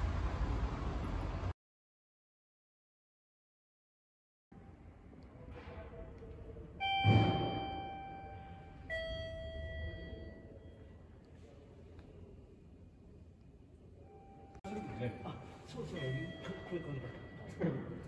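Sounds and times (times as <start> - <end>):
two-note electronic chime: 6.8 - 10.8.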